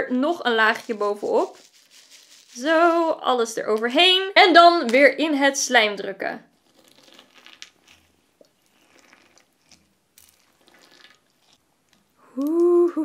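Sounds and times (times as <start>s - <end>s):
slime squishing: 6.6s - 12.2s
woman's drawn-out exclamation: 12.3s - 13.0s.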